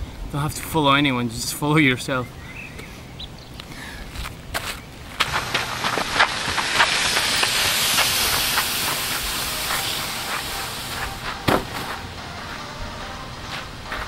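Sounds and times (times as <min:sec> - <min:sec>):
pallet scraping across gravel: 0:04.2 - 0:12.6
wooden knock: 0:11.5 - 0:12.0.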